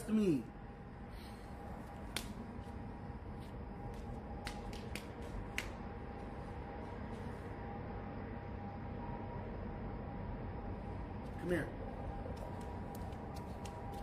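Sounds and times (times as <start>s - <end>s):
faint steady hum: 0.0s - 14.0s
flip-flop footsteps on asphalt: 12.1s - 14.0s.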